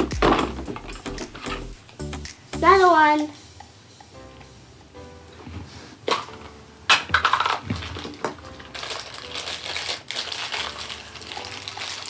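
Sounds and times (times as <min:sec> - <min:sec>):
plastic wrapping crinkling: 0:06.1 - 0:12.0.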